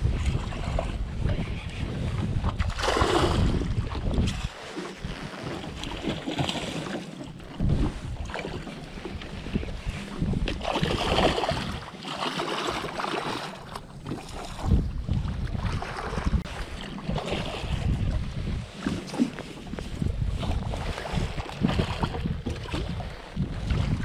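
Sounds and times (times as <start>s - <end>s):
water moving around boat: 0.0s - 24.0s
wind buffeting microphone: 0.0s - 24.0s
water splashing: 2.5s - 9.7s, 10.4s - 14.8s.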